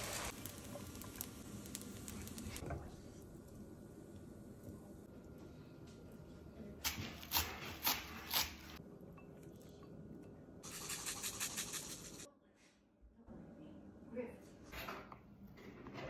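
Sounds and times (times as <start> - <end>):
seeds sprinkling rattle: 10.6 - 12.2
scraping food into ceramic bowl: 10.6 - 12.3.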